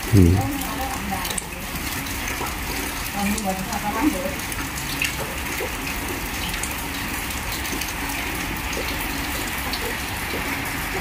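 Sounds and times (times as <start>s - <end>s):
heavy rain hissing: 0.0s - 0.9s.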